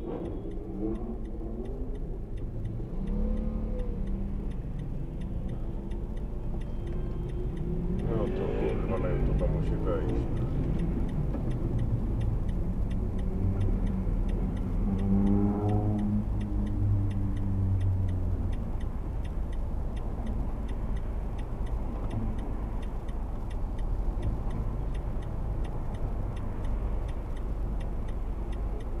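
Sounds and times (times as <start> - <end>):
engine revving: 0.0 - 6.0, 6.8 - 19.2
low engine rumble: 0.0 - 29.0
faint rapid ticking: 0.2 - 29.0.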